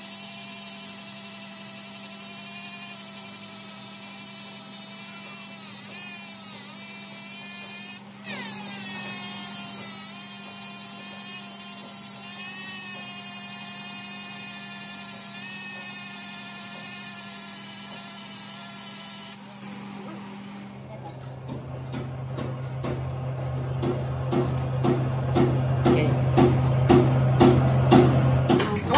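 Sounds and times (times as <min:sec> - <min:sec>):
lathe humming: 0:00.0 - 0:21.0
die grinder whining: 0:00.0 - 0:28.9.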